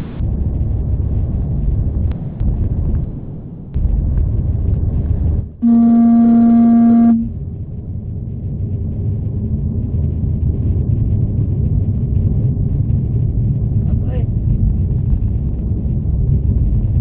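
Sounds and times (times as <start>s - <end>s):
car driving rumble from inside: 0.0s - 17.0s
car horn: 5.6s - 7.3s.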